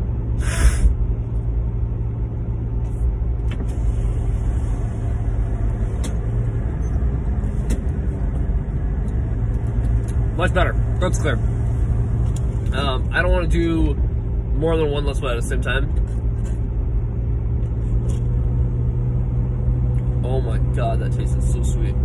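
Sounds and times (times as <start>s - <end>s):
car cabin engine and road rumble: 0.0s - 22.0s.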